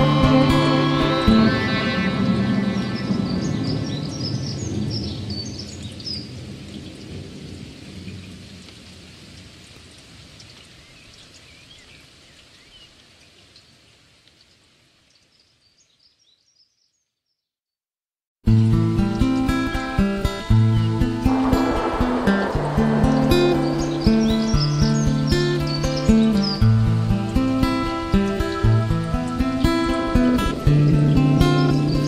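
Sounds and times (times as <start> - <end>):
rain: 0.0 - 16.0, 18.5 - 32.0
high bird chirps: 20.7 - 26.7
thunder: 20.9 - 26.2.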